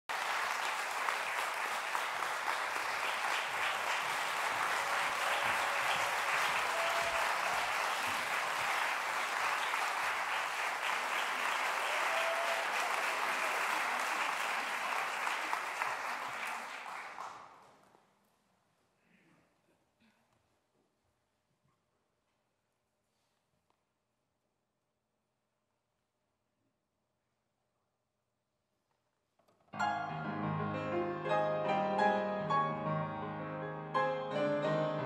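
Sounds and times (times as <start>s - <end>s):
audience applauding: 0.0s - 17.9s.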